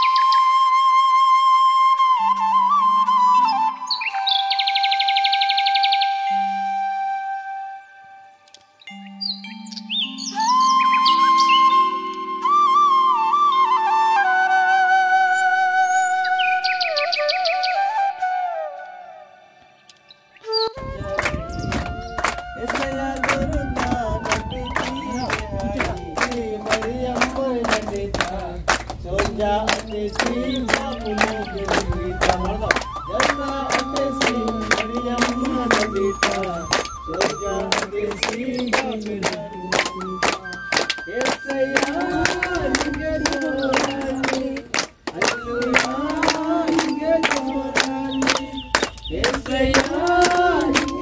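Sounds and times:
hands clapping a beat: 21.0s - 51.0s
congregation singing: 22.2s - 51.0s.

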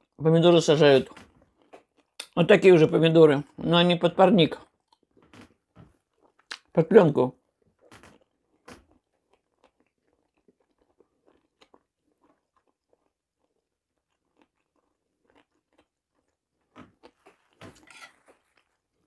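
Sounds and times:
chewing mouth clicks and smacks: 1.0s - 2.4s, 4.6s - 6.7s, 7.8s - 17.6s.

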